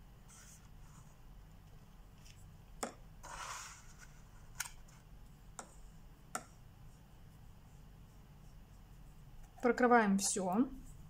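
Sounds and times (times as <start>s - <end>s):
brush swishing in paint: 5.8s - 9.6s.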